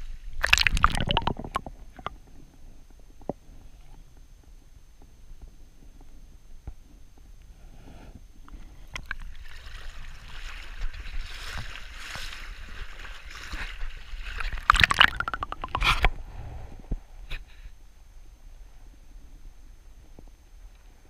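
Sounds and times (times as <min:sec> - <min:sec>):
water splashing and gurgling: 0:00.4 - 0:02.1, 0:09.0 - 0:16.1.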